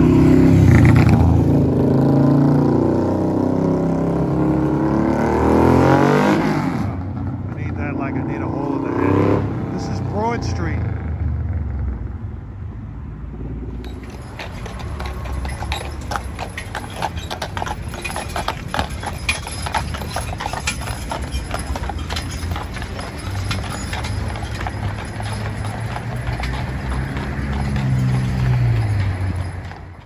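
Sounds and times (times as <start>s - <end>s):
passing vehicle hum: 0.0s - 30.0s
horse hooves clip-clopping on pavement: 7.4s - 8.8s, 13.4s - 30.0s.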